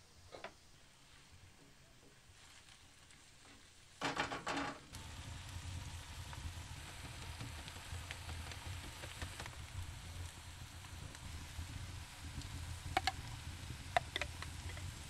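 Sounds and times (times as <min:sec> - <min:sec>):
food sizzling in a pan: 0:03.3 - 0:15.0.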